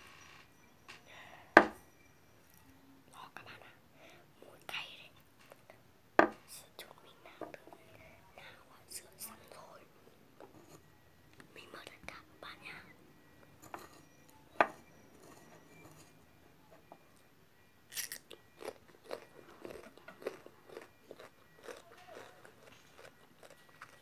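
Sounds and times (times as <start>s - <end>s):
person chewing and crunching food: 17.9s - 24.0s.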